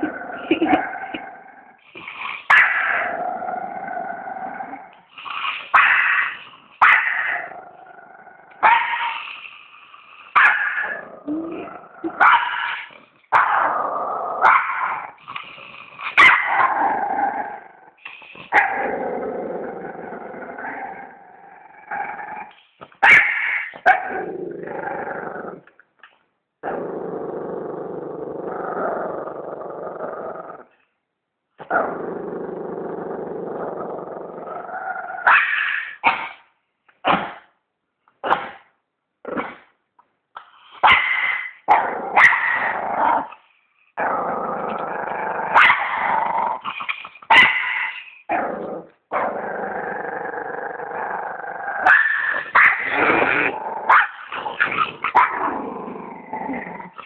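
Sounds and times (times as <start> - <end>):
dog growling: 0.0 - 22.6, 23.2 - 25.7, 26.6 - 30.7, 31.6 - 36.0, 44.0 - 57.0
small dog barking and yapping: 16.2 - 16.8, 23.0 - 24.2, 40.8 - 42.7, 45.5 - 46.0, 47.3 - 48.0, 51.8 - 53.0.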